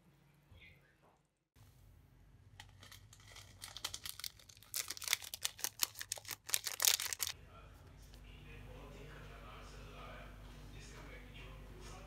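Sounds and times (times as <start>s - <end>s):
plastic sachets crinkling: 2.6s - 7.4s.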